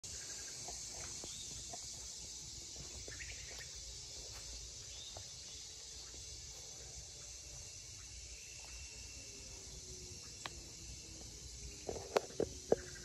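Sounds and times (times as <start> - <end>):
high-pitched insect chorus: 0.0 - 13.0
bird chirps: 3.0 - 3.8.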